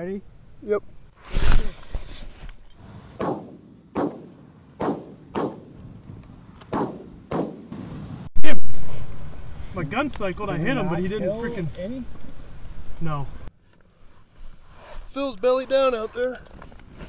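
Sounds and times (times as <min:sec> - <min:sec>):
shotgun shots with echo: 0:03.2 - 0:05.8, 0:06.7 - 0:07.8.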